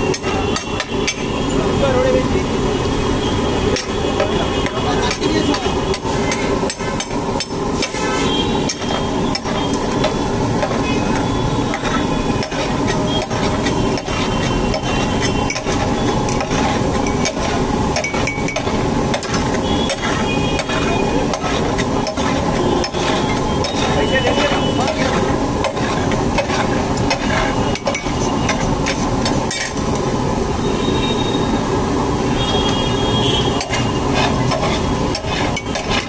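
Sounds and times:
metal spatula scraping on iron griddle: 7.8s - 29.8s, 33.6s - 36.0s.

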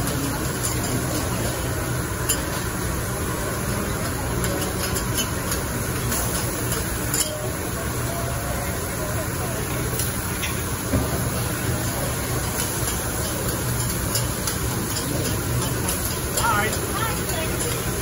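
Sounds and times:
metal spatulas clicking on griddle: 0.0s - 1.6s, 2.3s - 2.6s, 4.0s - 7.5s, 12.4s - 18.0s
food sizzling on a griddle: 0.0s - 18.0s.

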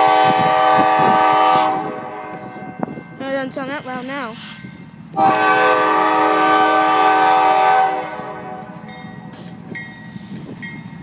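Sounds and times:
locomotive air horn blast: 0.0s - 2.5s, 5.2s - 9.6s
train rumble: 0.0s - 11.0s.

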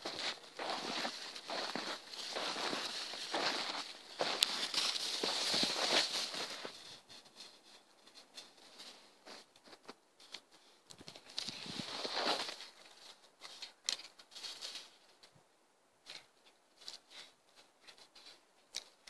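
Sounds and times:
footsteps crunching in snow: 0.0s - 10.0s, 11.1s - 13.7s.

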